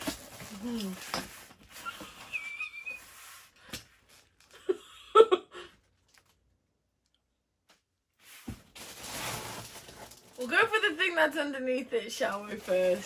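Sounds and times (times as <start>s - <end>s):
woman laughing: 4.5s - 5.8s.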